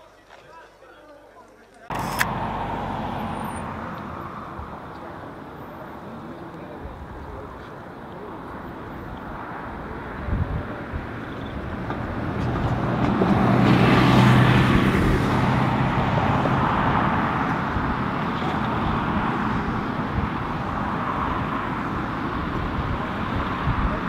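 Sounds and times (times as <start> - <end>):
jet airliner passing low: 1.9 - 7.4.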